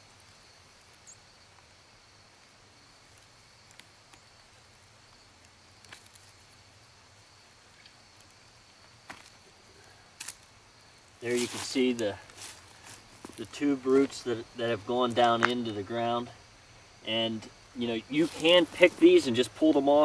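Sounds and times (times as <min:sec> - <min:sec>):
high insect trill: 0:00.0 - 0:20.0.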